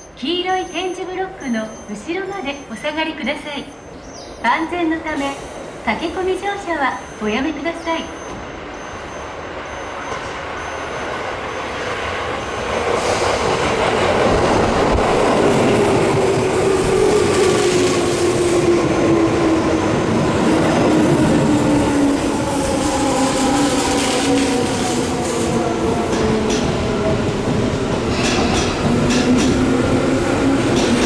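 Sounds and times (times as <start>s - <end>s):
train wheels rumbling: 7.8s - 31.0s.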